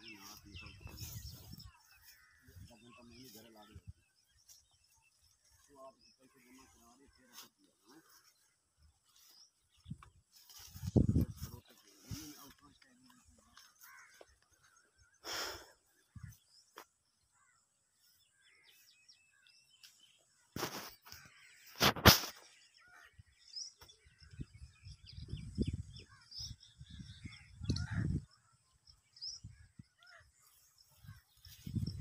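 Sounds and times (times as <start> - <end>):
small birds chirping: 0.0 - 32.0
leaves and branches rustling: 6.4 - 14.3.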